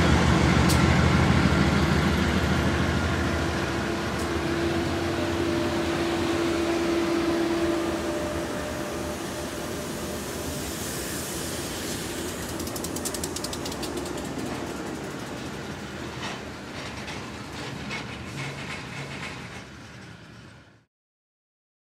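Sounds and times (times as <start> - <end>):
freight train rumble: 0.0 - 20.9
train wheels clattering over rail joints: 11.4 - 20.6.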